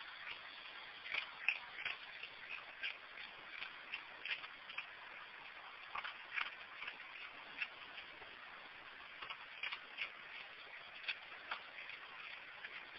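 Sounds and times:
raccoon crunching kibble: 0.0s - 12.9s
steady hiss: 0.0s - 12.9s.

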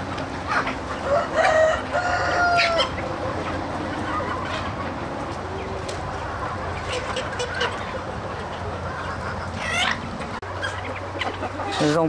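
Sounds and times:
chickens clucking: 0.0s - 12.0s
rooster crowing: 1.0s - 3.0s.

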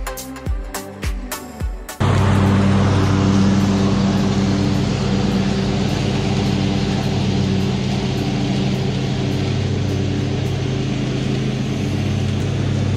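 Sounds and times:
music with a beat: 0.0s - 2.0s
mower cutting deck rushing: 2.0s - 12.9s
riding mower engine running: 2.0s - 12.9s.

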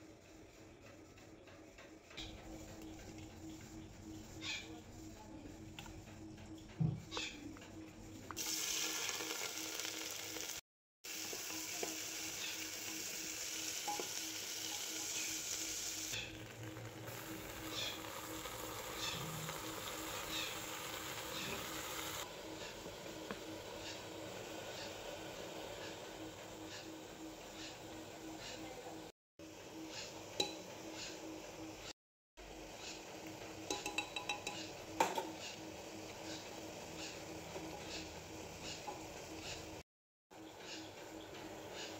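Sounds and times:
onions sizzling in hot oil: 8.4s - 28.2s
spoon tapping metal pot: 33.7s - 35.3s.

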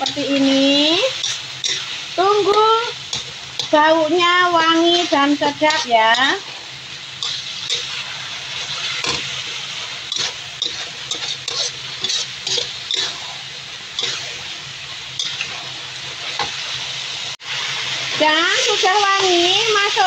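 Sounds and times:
paste sizzling in hot oil: 0.0s - 20.0s
metal spatula scraping pan: 4.6s - 13.4s.

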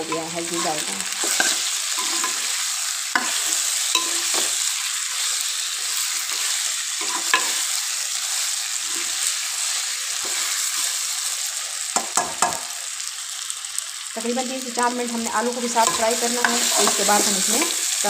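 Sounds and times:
food sizzling in oil: 0.0s - 18.0s
metal spoon scraping a pot: 0.1s - 2.6s, 3.2s - 4.6s, 6.2s - 7.6s.

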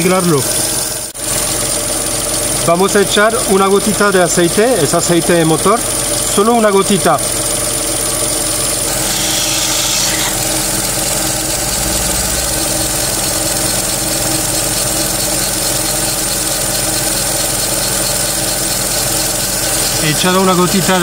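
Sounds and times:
car engine idling: 0.0s - 21.0s
belt pulley squealing: 8.2s - 21.0s.

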